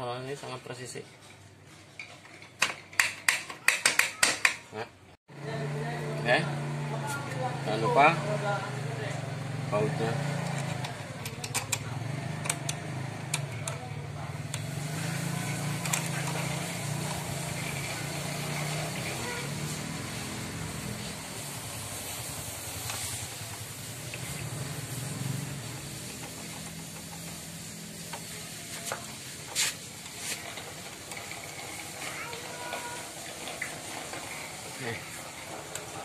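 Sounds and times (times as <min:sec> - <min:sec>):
wrench clicking on bolts: 0:10.4 - 0:11.8.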